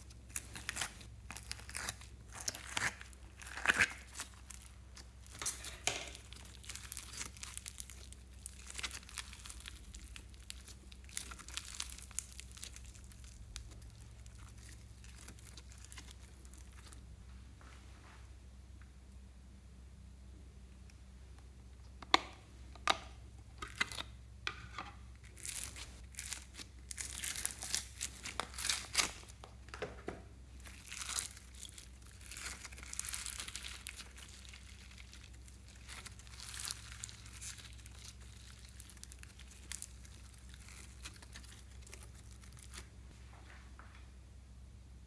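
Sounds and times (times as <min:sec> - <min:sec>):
slime crackling and squishing: 0:00.0 - 0:17.2, 0:25.1 - 0:29.7, 0:30.5 - 0:43.0.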